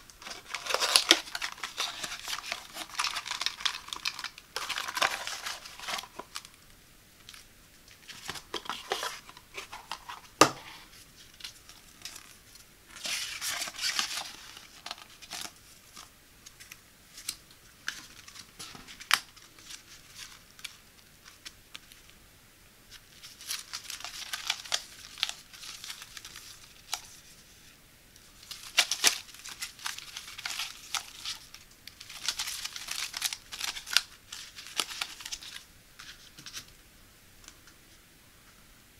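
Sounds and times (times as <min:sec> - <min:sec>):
foil sachets crinkling: 0:00.1 - 0:06.6, 0:13.0 - 0:21.5, 0:23.2 - 0:27.2, 0:28.4 - 0:36.6.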